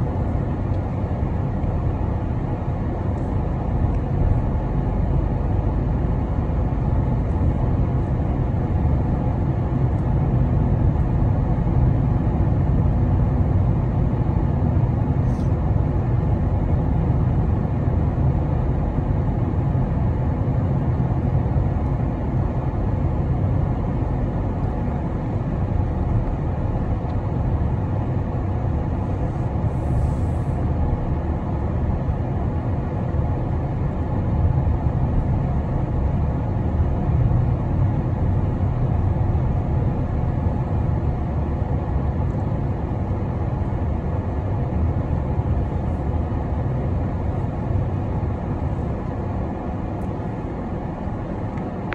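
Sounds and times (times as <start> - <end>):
car cabin road noise: 0.0 - 51.9.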